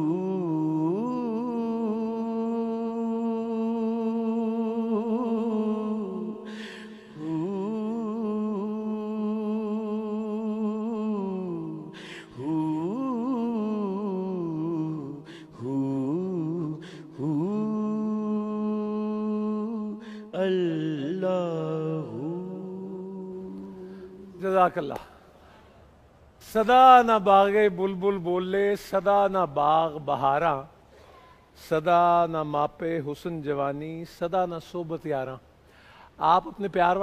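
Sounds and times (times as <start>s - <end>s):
man singing devotional song: 0.0s - 25.3s, 26.4s - 30.8s, 31.4s - 37.0s
short breaths: 6.5s - 7.2s, 11.9s - 12.4s, 15.2s - 15.6s, 25.1s - 25.9s, 30.8s - 31.5s, 35.6s - 36.2s.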